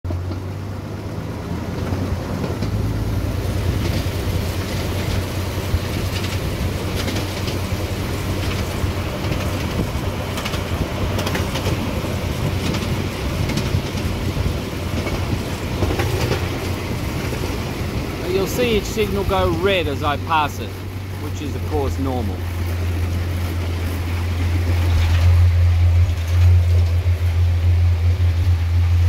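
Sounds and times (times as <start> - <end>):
miniature train rumbling: 0.1 - 29.0
wheels clicking on rails: 0.1 - 29.0.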